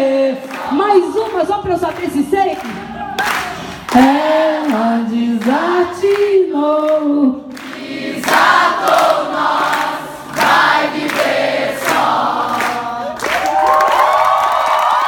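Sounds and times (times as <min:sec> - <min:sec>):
crowd singing a held note: 0:03.5 - 0:13.4
audience cheering and shouting: 0:13.3 - 0:15.0.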